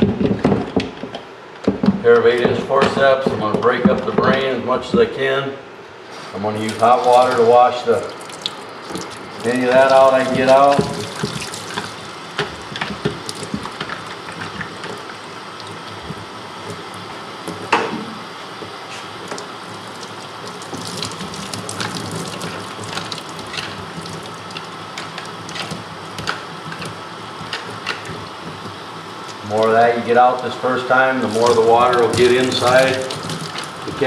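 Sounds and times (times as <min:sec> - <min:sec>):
water splashing over skull: 0:06.6 - 0:16.9, 0:19.7 - 0:25.8, 0:31.2 - 0:34.0
water running from a tap: 0:06.6 - 0:17.1, 0:19.3 - 0:26.3, 0:29.5 - 0:34.0.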